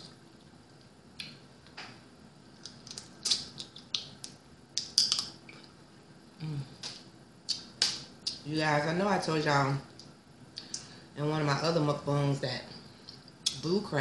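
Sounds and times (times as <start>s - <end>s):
wet eating smacks and clicks: 2.6s - 5.4s.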